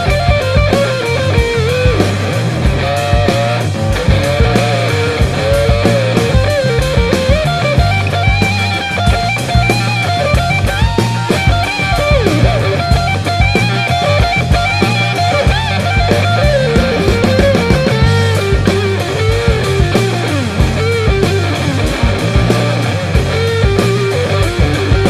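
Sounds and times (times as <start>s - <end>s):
rock music with guitar and drums: 0.0s - 25.0s.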